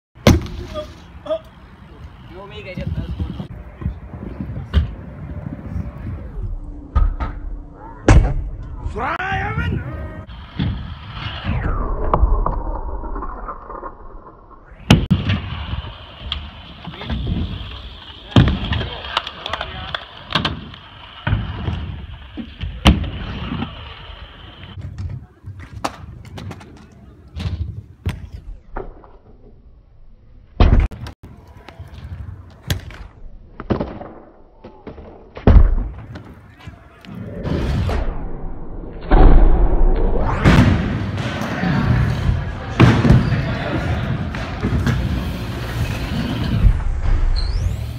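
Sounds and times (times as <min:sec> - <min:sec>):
scooter wheels rolling on concrete: 0:15.3 - 0:27.4.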